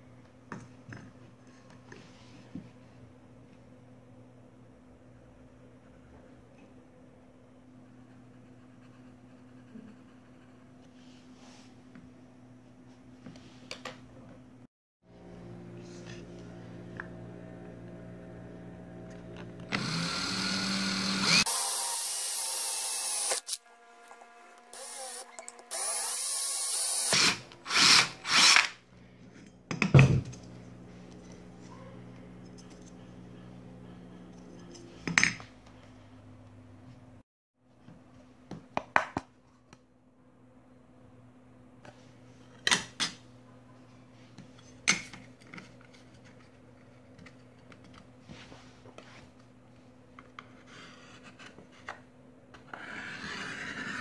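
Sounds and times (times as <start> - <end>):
cordless drill drilling metal sheet: 19.7 - 23.6, 24.7 - 28.8.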